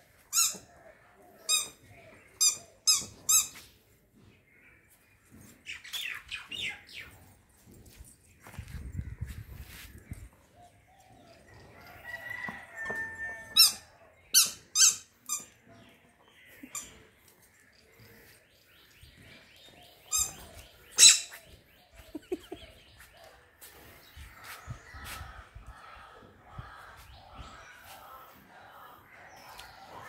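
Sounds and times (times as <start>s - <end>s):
faint birds calling: 13.6s - 30.0s.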